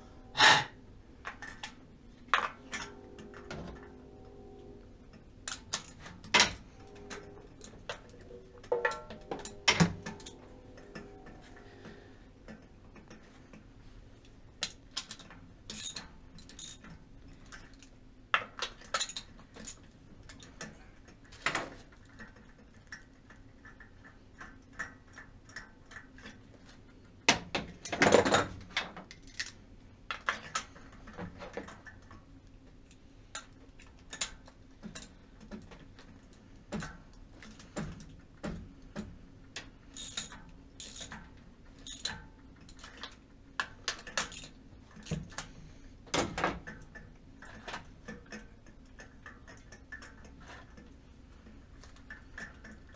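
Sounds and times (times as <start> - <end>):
metal hand tools clinking: 14.6 - 16.9, 41.8 - 43.2.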